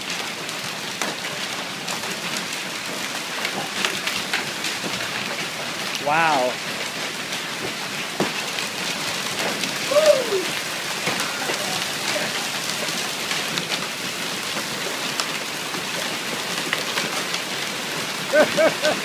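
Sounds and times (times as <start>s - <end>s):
hail pelting down: 0.0s - 19.0s
person exclaiming: 6.0s - 6.6s, 9.8s - 10.6s, 18.3s - 19.0s.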